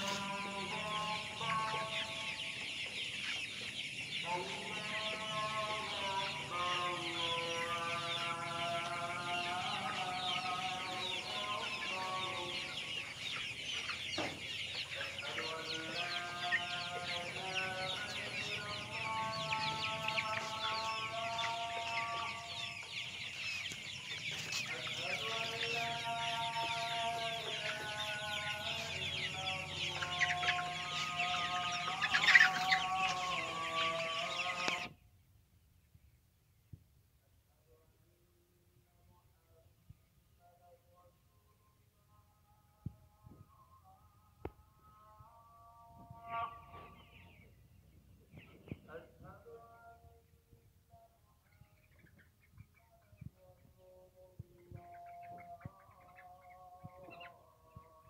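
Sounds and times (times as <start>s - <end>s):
chickens cheeping and clucking: 0.0s - 58.0s
chicken squawk: 29.9s - 34.9s.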